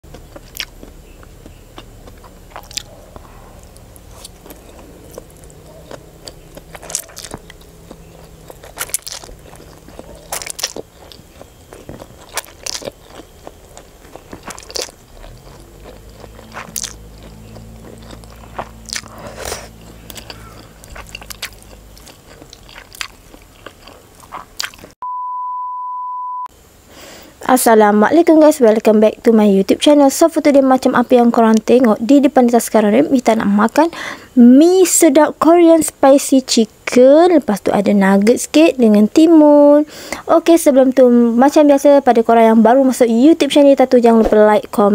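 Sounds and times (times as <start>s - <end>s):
noodles slurped and chewed: 4.1s - 25.0s
high test tone beep: 25.0s - 26.5s.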